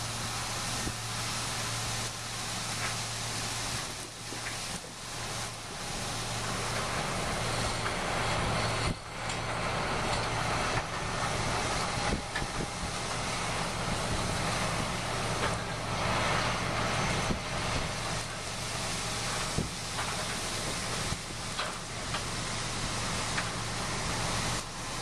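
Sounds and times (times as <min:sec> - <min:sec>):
machine engine droning: 0:00.0 - 0:25.0.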